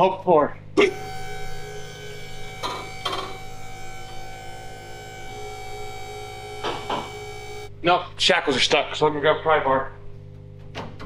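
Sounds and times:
hydraulic pump motor humming: 0.8s - 7.7s.

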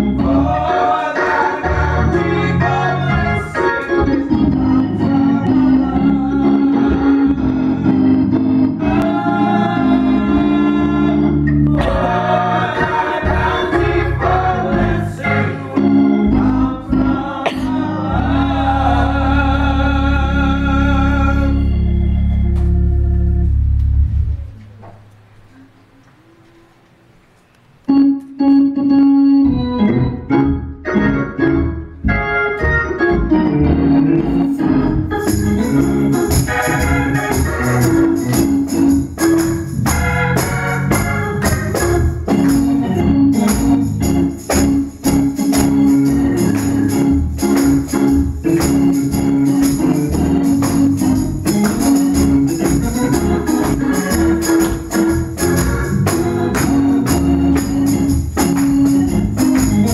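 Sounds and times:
gospel organ playing: 0.0s - 59.9s
percussion beat: 11.7s - 14.7s, 35.2s - 59.9s.

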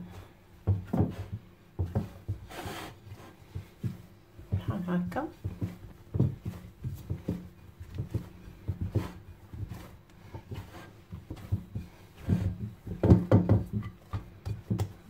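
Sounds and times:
dough rubbing: 0.0s - 15.0s
dough thumping against a bowl: 3.5s - 15.0s.

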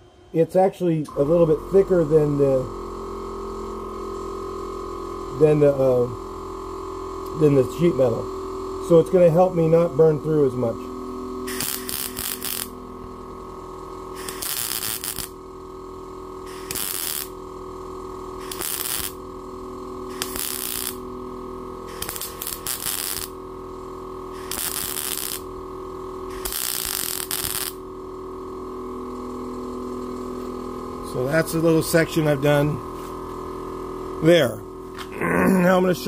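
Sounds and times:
welder hum: 0.0s - 36.0s
welding arc crackle: 11.4s - 28.4s.

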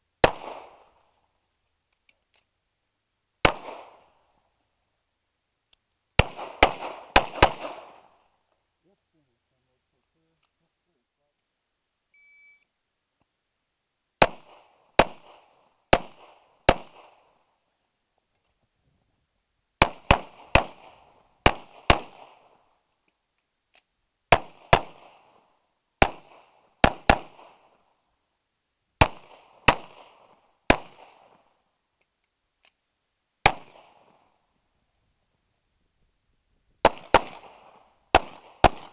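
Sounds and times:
pistol shots: 0.2s - 1.0s, 3.4s - 4.1s, 6.2s - 8.2s, 14.2s - 17.2s, 19.8s - 22.5s, 24.3s - 25.3s, 26.0s - 27.7s, 29.0s - 31.4s, 33.4s - 34.2s, 36.8s - 38.9s
shot timer beep: 12.2s - 12.6s.

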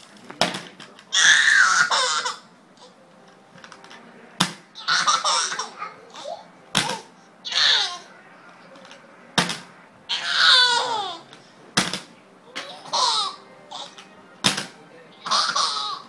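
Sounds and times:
toddler laughing: 1.2s - 2.9s, 4.8s - 8.0s, 12.6s - 14.0s, 15.2s - 16.0s.

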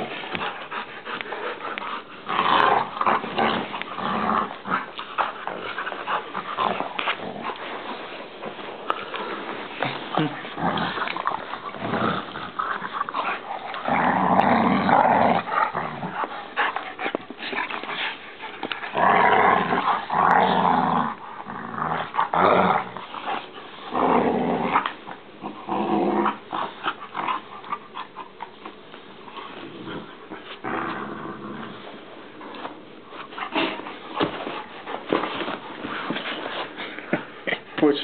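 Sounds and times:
dogs growling: 0.0s - 37.8s
knocks and scuffles: 33.6s - 37.3s.

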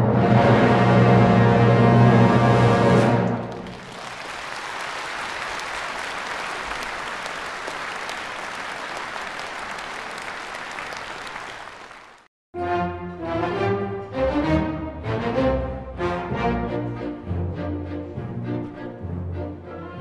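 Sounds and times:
music: 0.0s - 3.8s, 12.6s - 20.0s
crowd applauding: 3.2s - 12.3s.

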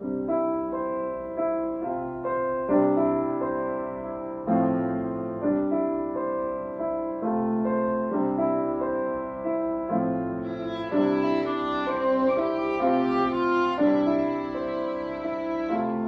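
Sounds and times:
grand piano playing chords: 0.0s - 16.0s
violin: 10.4s - 16.0s.

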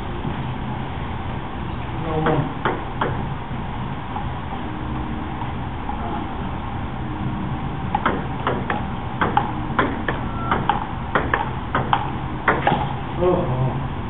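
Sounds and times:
steady low hum: 0.0s - 14.0s
table tennis ball clicking: 7.9s - 12.8s.

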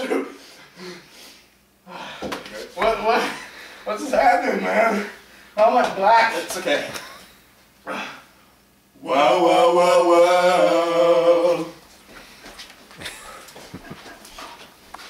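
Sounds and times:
men singing a cappella: 9.0s - 11.9s.

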